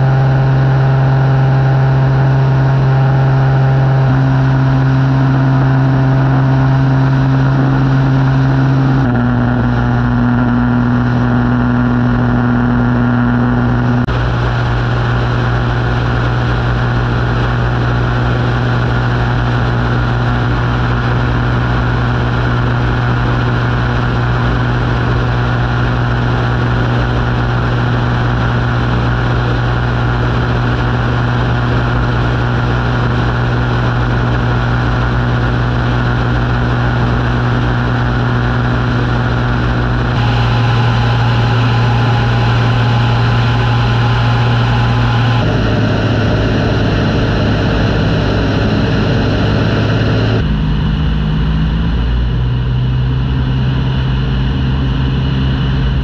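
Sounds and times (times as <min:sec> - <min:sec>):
light aircraft engine droning: 0:13.6 - 0:56.0.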